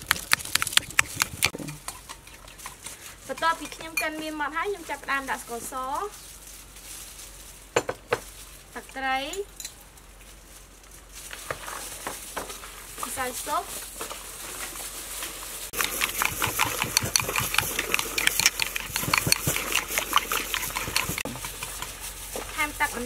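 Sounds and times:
spoon clinking and scraping bowl: 0:01.4 - 0:04.3, 0:15.8 - 0:22.0.

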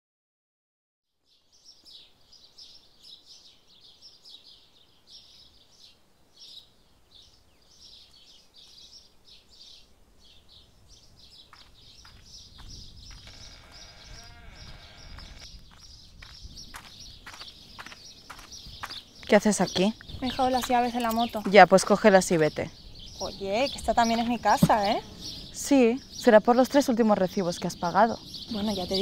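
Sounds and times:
cicadas chirping: 0:11.0 - 0:29.0.

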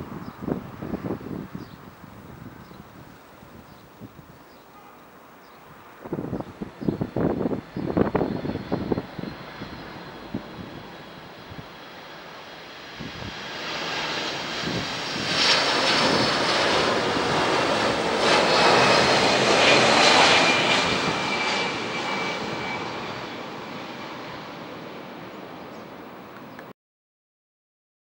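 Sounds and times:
jet airliner passing overhead: 0:00.0 - 0:26.6
high engine whine: 0:05.2 - 0:26.7.

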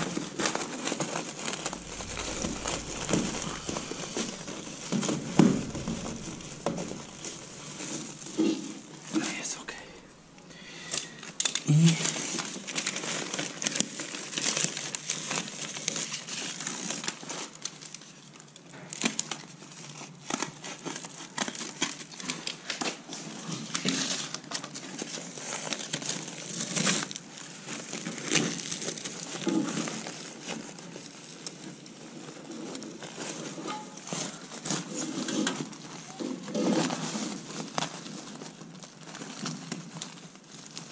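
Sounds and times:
foil duct and tape crinkling: 0:10.5 - 0:40.9.

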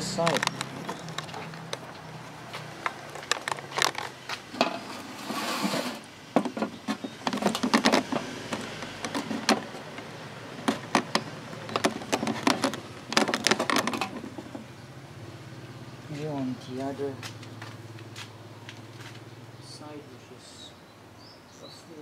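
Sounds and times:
hands handling plastic mount: 0:00.2 - 0:02.1, 0:02.8 - 0:04.9, 0:06.4 - 0:14.7.

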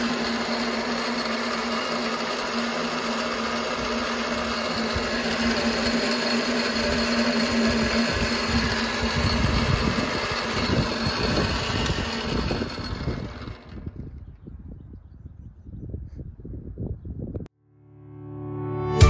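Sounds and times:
lathe motor whirring: 0:00.0 - 0:14.4.

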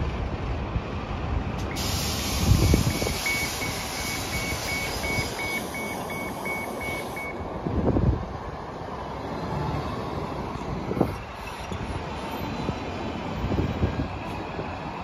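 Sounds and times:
buses idling: 0:00.0 - 0:15.0
air hissing: 0:01.6 - 0:07.2
bus warning beeper beeping: 0:01.7 - 0:07.5.

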